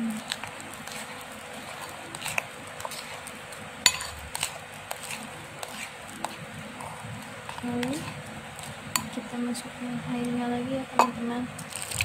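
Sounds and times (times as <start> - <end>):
spoon clinking against ceramic bowl: 3.8 - 4.2, 11.0 - 11.2.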